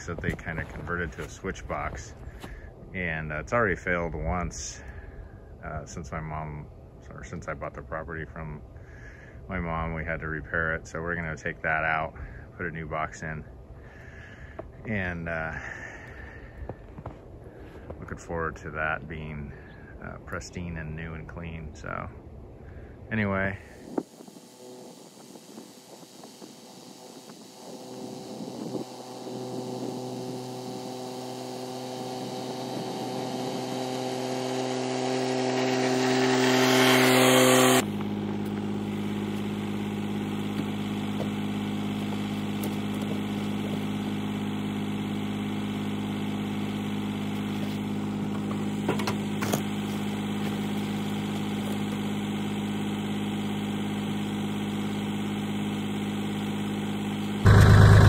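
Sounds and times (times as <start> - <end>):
tractor diesel engine running: 0.0 - 5.5, 23.5 - 58.0.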